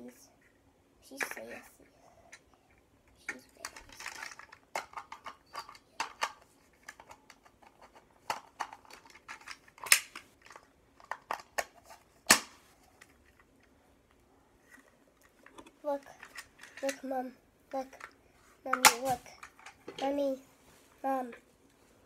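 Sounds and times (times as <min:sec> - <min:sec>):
plastic toy clicks and snaps: 0:08.2 - 0:11.7, 0:18.0 - 0:19.8.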